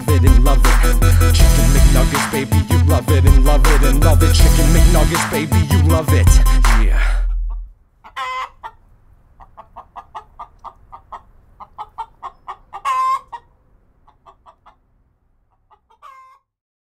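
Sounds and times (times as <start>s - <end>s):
hen clucking and squawking: 7.4s - 16.5s.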